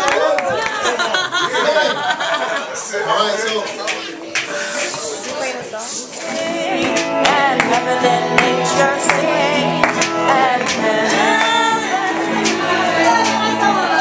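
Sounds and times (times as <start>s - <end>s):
electric guitar bending notes: 6.2s - 14.0s
steady drumbeat: 6.3s - 14.0s.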